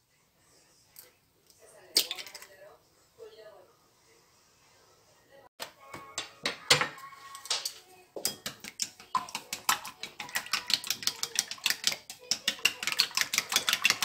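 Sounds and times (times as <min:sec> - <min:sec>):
chopsticks beating eggs in bowl: 0:08.2 - 0:14.0.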